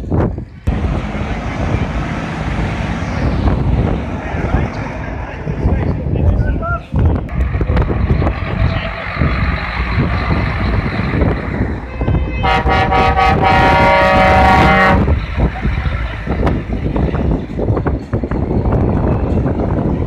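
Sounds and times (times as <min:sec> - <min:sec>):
lorry diesel engine running: 0:00.0 - 0:20.0
truck air horn blast: 0:11.9 - 0:15.2.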